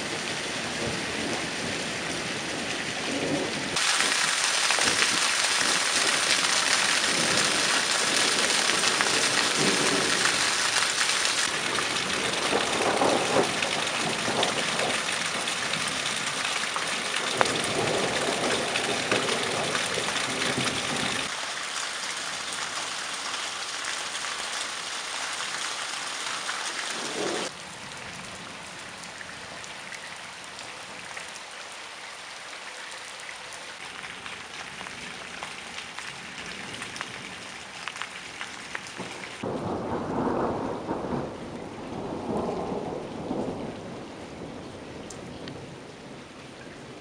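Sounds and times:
rain falling on puddles: 0.0s - 47.0s
thunder rumbling: 0.6s - 21.3s, 39.0s - 46.2s.

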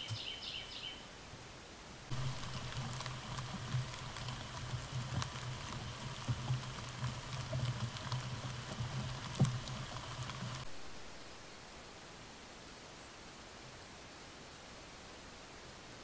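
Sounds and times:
low electrical hum: 0.0s - 15.6s
animal moving through dry leaves: 2.1s - 10.9s.

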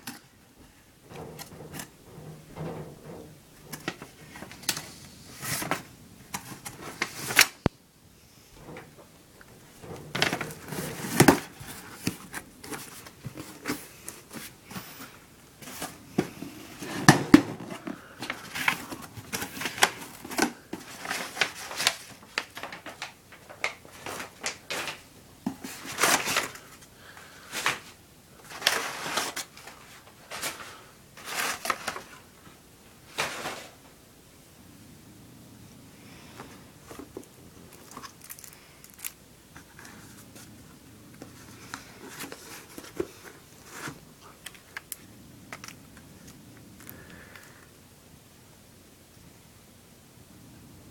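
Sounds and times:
packing paper rustling and crinkling: 1.0s - 7.7s, 8.6s - 33.8s, 36.4s - 47.5s
cardboard box being opened: 10.0s - 14.6s.

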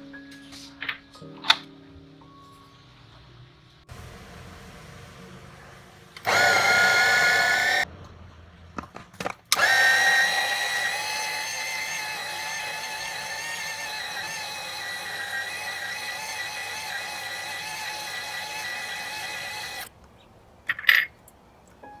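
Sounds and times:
food chopper motor whining: 6.1s - 7.8s, 9.5s - 19.9s.

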